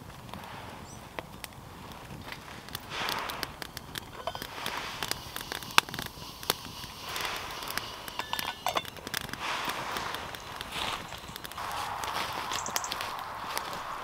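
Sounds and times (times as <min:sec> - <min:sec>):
wood fire crackling and popping: 0:00.0 - 0:14.0
metal pot lid clink: 0:08.1 - 0:09.0.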